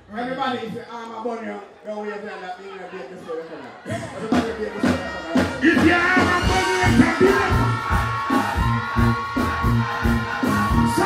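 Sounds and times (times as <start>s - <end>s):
dancehall beat over sound system: 3.9s - 11.0s
thudding bass beat: 5.4s - 11.0s
held synth melody: 6.2s - 11.0s.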